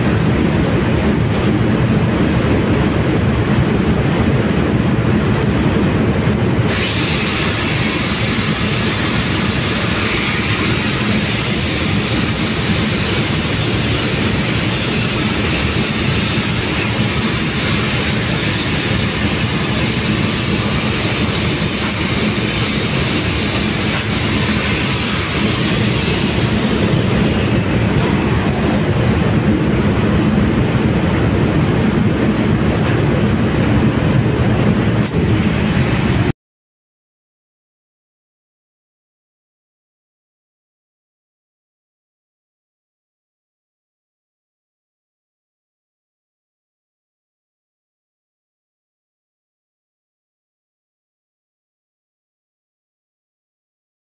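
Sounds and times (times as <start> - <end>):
engine-room machinery rumble: 0.0 - 36.3
strong hiss: 6.7 - 29.6.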